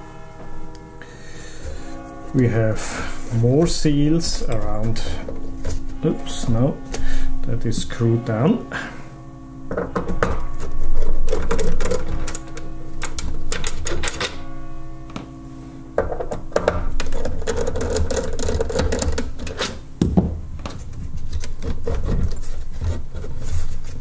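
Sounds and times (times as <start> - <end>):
metal and plastic parts clicking: 11.0 - 14.4, 16.0 - 19.8.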